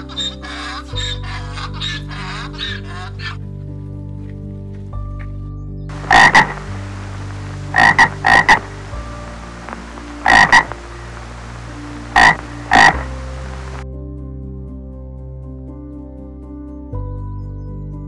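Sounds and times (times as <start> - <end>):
frog croaking: 0.0 - 3.4, 5.9 - 13.8
steady hiss: 5.9 - 13.8.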